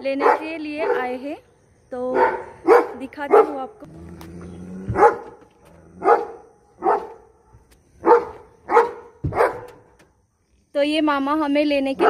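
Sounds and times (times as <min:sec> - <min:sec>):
dog barking: 0:00.2 - 0:01.2, 0:02.1 - 0:03.7, 0:04.9 - 0:05.4, 0:06.0 - 0:07.4, 0:08.0 - 0:09.8.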